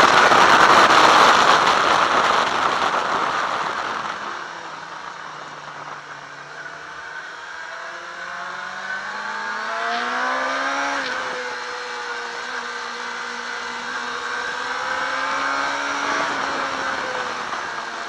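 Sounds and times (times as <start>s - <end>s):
motorcycle engine accelerating: 0.0s - 18.0s
wind noise: 0.0s - 18.0s.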